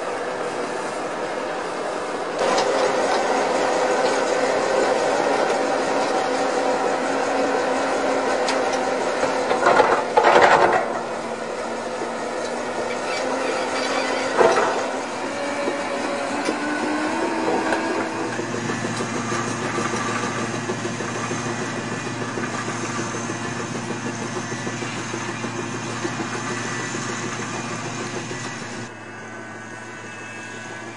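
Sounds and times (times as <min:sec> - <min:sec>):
machine engine running: 0:00.0 - 0:30.9.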